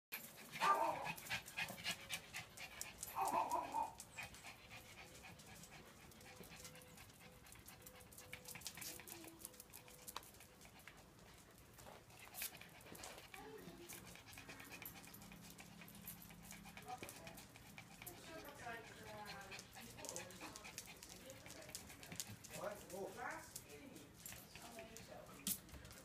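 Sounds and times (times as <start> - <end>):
faint ticks and rustles: 0.2 - 26.0
dog barking: 0.6 - 1.1, 3.2 - 4.0.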